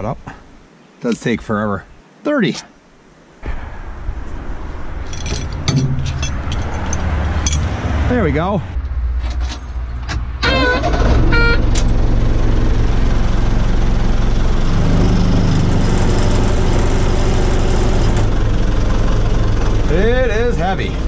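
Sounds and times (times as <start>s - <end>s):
diesel engine running hard: 10.1s - 21.0s.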